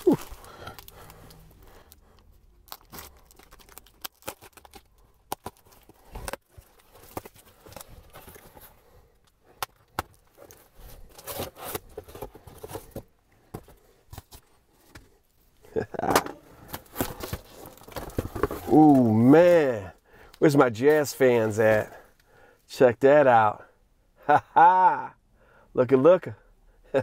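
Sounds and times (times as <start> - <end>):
cardboard crinkling: 0.0 - 1.9, 2.6 - 8.8, 16.7 - 19.4
packing tape ripping: 2.7 - 6.4.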